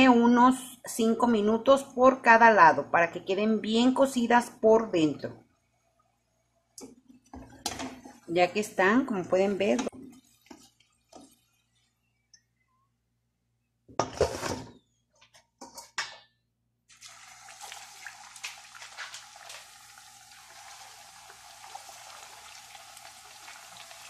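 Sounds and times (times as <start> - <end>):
food deep-frying in oil: 9.3 - 12.3, 16.9 - 24.0.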